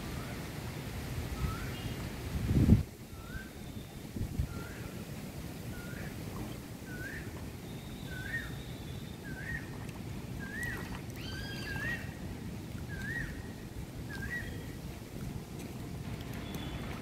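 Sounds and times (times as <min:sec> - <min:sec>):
wind rumble on microphone: 0:00.0 - 0:08.4, 0:09.1 - 0:17.0
choppy river water: 0:00.0 - 0:17.0
bird rising chirp: 0:10.4 - 0:12.2.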